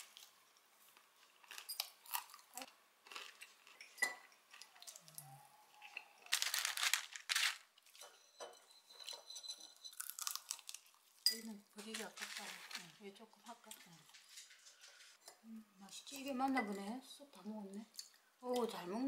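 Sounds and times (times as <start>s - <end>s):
parchment paper crinkling: 6.2s - 7.7s, 11.8s - 15.2s
cutlery clinking on plates: 7.9s - 10.0s.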